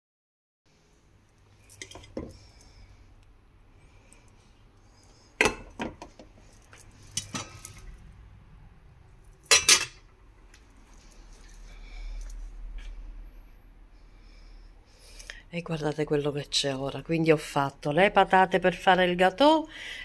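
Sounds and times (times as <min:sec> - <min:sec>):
glass lid and cookware clinking: 0:09.5 - 0:10.0.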